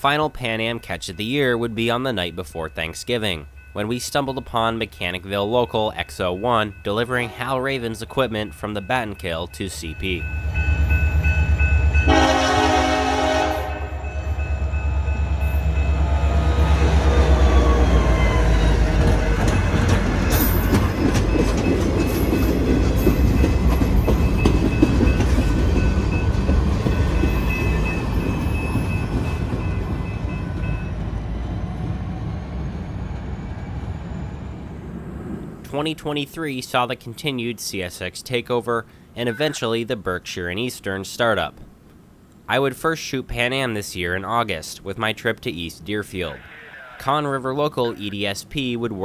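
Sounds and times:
locomotive rumbling past: 0.0s - 35.8s
locomotive horn blast: 12.1s - 14.1s
train wheels clacking: 18.9s - 30.8s.

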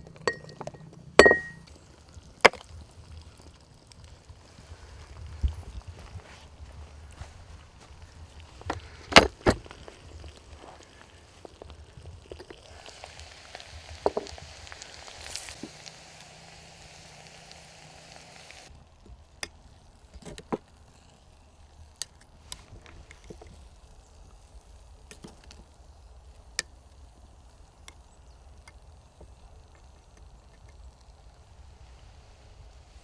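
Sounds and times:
steady hiss: 0.0s - 33.0s
ceramic lid clink: 1.2s - 1.6s.

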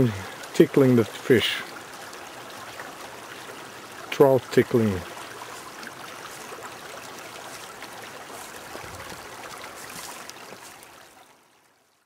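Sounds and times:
stream flowing over stones: 0.0s - 12.0s.

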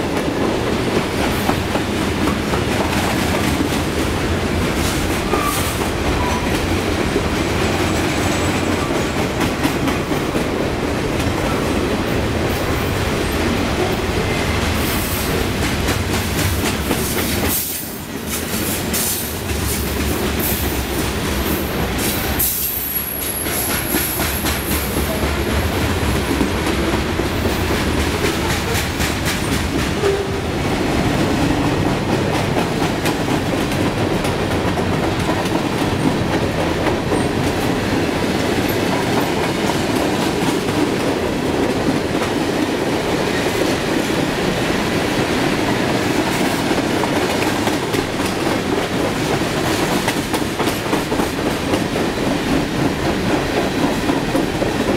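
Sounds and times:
train wheels clattering over rails: 0.0s - 54.9s.

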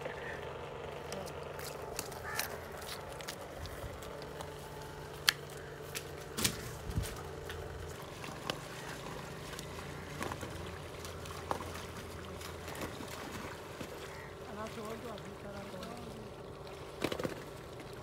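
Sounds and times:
steady low motor hum: 0.0s - 18.0s
wading through muddy water: 0.0s - 18.0s
sharp water splashes: 5.1s - 18.0s.

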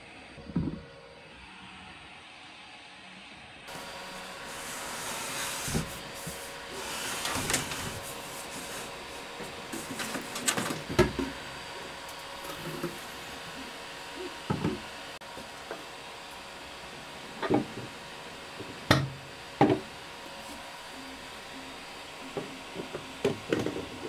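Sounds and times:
steady hiss: 3.7s - 10.6s.

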